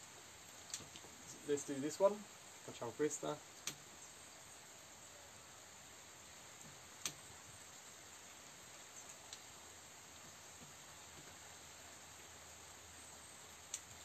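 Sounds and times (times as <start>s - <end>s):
faint ticks: 3.5s - 4.2s, 6.6s - 7.3s, 8.7s - 9.6s, 13.5s - 14.0s.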